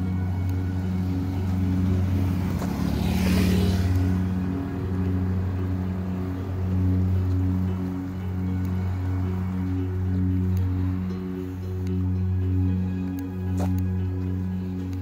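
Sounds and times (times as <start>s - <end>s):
ambient music: 0.0s - 15.0s
steady low drone: 0.0s - 15.0s
vehicle passing close by: 0.7s - 11.3s.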